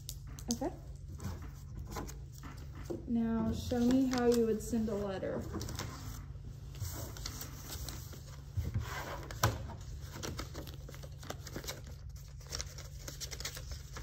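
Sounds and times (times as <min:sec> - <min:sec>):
paper folding and rustling: 0:00.0 - 0:14.0.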